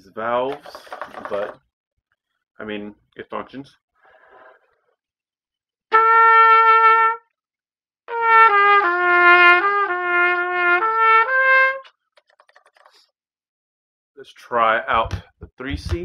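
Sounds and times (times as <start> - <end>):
plastic trumpet playing: 5.9 - 7.3, 8.1 - 11.9.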